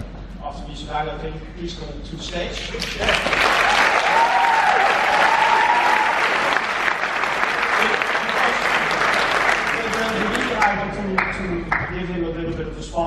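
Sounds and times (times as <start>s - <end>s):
audience applauding: 2.6s - 11.9s.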